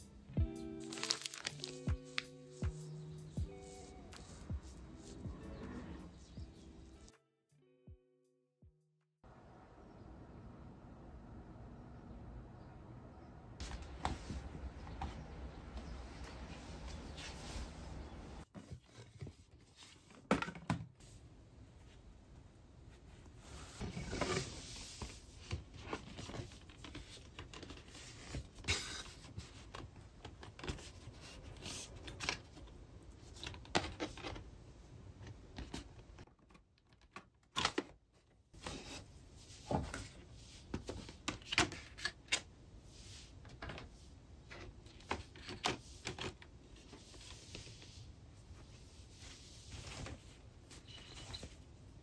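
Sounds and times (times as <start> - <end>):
cloth rustling: 0.9 - 2.3.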